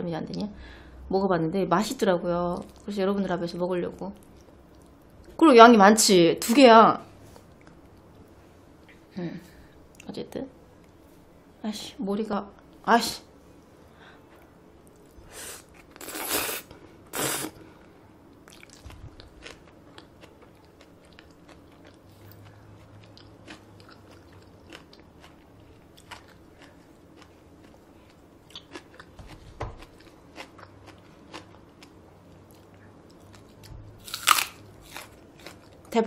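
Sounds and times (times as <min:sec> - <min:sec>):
slurping noodles: 0:15.5 - 0:17.6
quiet chewing: 0:17.8 - 0:35.9
crunchy bite into green onion: 0:34.0 - 0:35.5.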